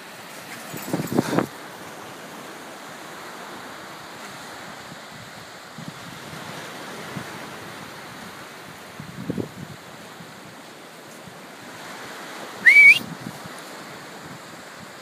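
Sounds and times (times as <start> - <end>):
wind noise on microphone: 0.0 - 1.9, 4.2 - 15.0
surf washing on shore: 0.0 - 15.0.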